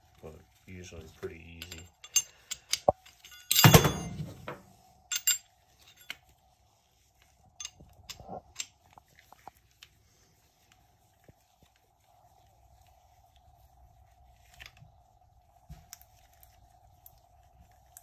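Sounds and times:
faint steady hum: 0.0s - 18.0s
metal hand tools clattering: 1.5s - 6.2s.

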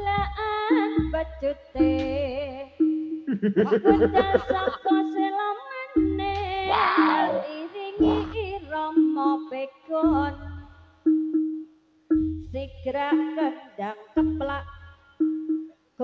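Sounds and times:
deep beat: 0.0s - 5.4s, 6.0s - 9.2s, 10.0s - 13.4s, 14.2s - 15.7s
sliding melody line: 0.7s - 9.4s.

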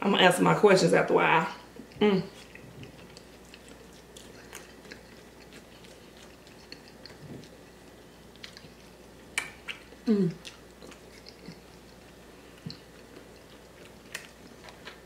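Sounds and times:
person chewing soft food: 1.7s - 15.0s
person humming mm of pleasure: 10.0s - 10.4s.

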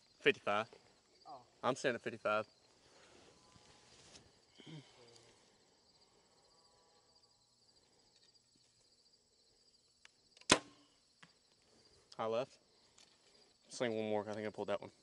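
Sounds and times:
crickets and insects chirring: 0.0s - 15.0s
bow string crack: 10.0s - 11.4s.

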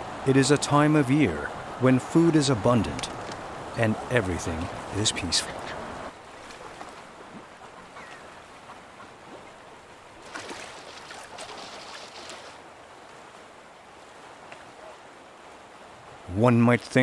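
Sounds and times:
ducks splashing in water: 10.2s - 12.7s.

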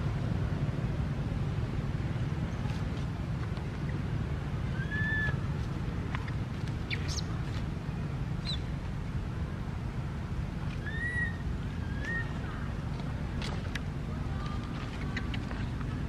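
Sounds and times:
low rumble of wind: 0.0s - 16.0s.

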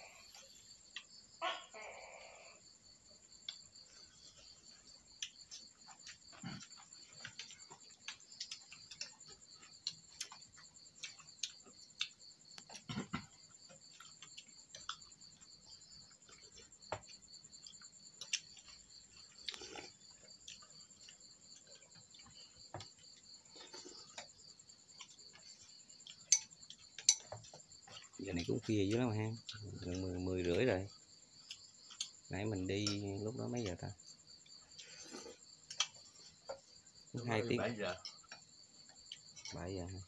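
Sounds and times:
crickets trilling: 0.0s - 40.0s.

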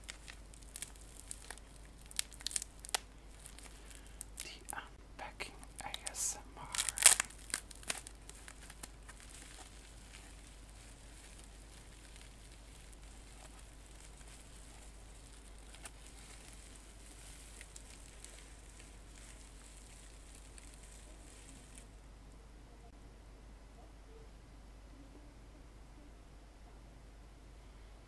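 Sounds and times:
bubble wrap crinkling: 0.0s - 21.9s.

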